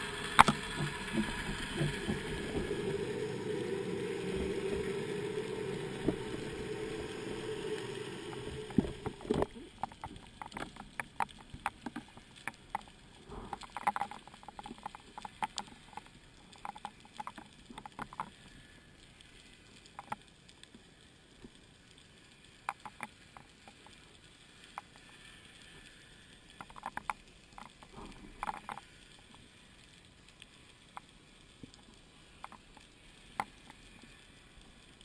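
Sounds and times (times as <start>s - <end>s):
sharp underwater clicks: 0.0s - 2.7s, 7.3s - 20.8s, 21.4s - 35.0s
faint steady hiss: 0.0s - 35.0s
low rumble of water movement: 0.0s - 35.0s.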